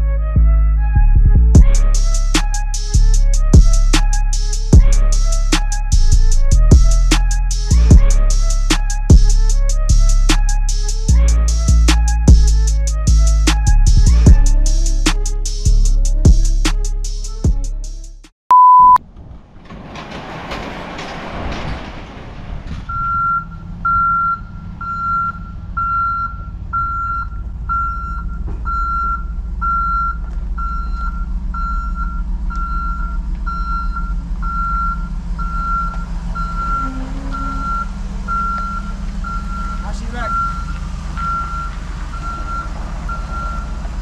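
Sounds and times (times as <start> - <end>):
truck engine running: 0.0 - 18.2, 19.0 - 44.0
background music: 0.0 - 18.3
truck reversing alarm beeping: 1.6 - 16.6, 22.9 - 44.0
short electronic beep: 18.5 - 19.0.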